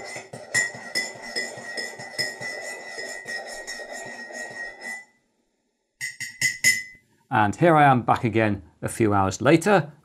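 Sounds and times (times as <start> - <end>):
teaspoon clinking in a ceramic mug: 0.0 - 3.5, 6.0 - 7.0.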